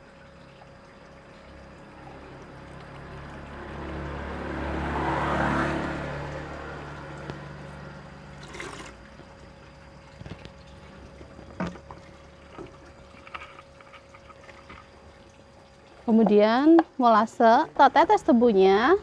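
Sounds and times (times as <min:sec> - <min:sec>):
liquid pouring into bucket: 0:00.0 - 0:16.4
liquid pouring into plastic jug: 0:07.2 - 0:16.4.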